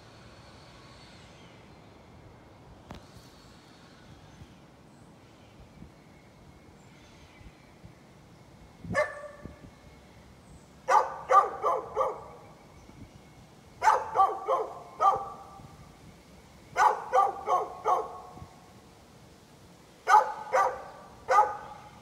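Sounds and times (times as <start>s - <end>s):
dog barking: 9.0s - 9.5s, 10.9s - 12.4s, 13.8s - 15.4s, 16.8s - 18.4s, 20.1s - 21.8s.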